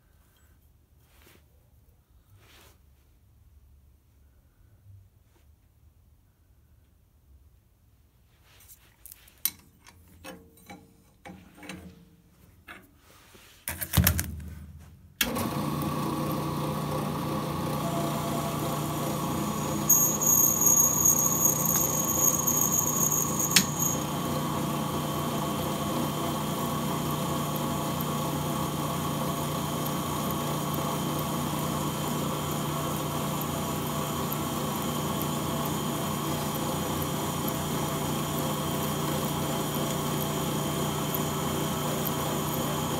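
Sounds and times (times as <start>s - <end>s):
tools clicking and knocking: 9.4s - 12.0s
electric motor humming: 15.4s - 42.9s
high squeal of cutting bit: 19.7s - 24.0s.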